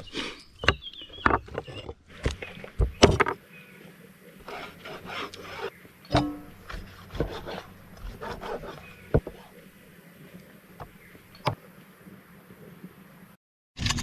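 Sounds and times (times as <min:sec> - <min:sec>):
scraping and rubbing: 0:04.4 - 0:09.8
sharp knocks: 0:06.1 - 0:09.4.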